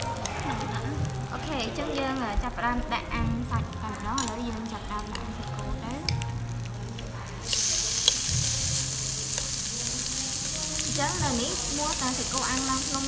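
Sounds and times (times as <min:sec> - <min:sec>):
chopsticks clicking: 0:04.1 - 0:04.5, 0:06.9 - 0:08.2
beef sizzling on a grill pan: 0:04.1 - 0:13.0.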